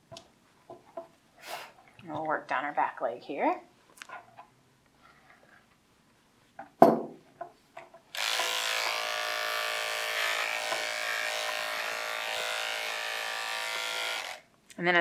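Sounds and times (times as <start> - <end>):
electric clipper buzzing: 8.1 - 14.5.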